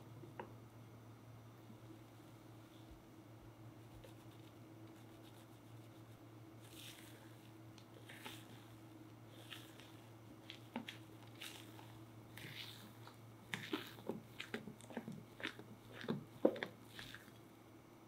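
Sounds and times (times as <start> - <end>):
spatula stirring thick batter: 3.8 - 17.4.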